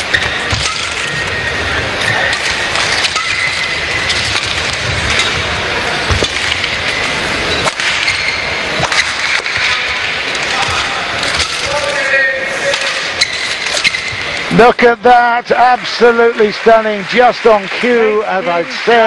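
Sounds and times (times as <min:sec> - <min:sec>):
shoes squeaking on court: 0:00.0 - 0:09.7, 0:12.9 - 0:14.4
rackets striking shuttlecock: 0:00.0 - 0:12.0
arena noise: 0:00.0 - 0:19.0.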